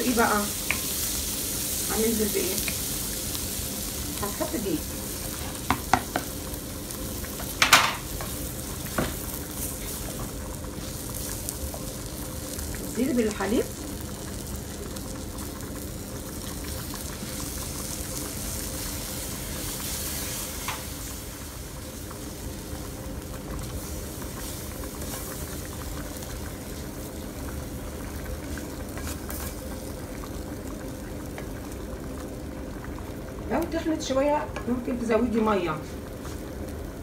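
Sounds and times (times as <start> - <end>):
sauce bubbling and sizzling: 0.0 - 37.0.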